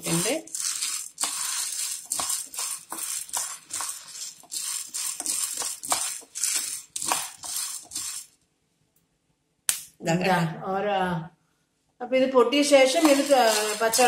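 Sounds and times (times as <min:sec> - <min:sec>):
beans rattling in a frying pan: 0:00.0 - 0:08.4, 0:12.8 - 0:14.0
wooden spatula stirring: 0:00.0 - 0:08.4, 0:12.8 - 0:14.0.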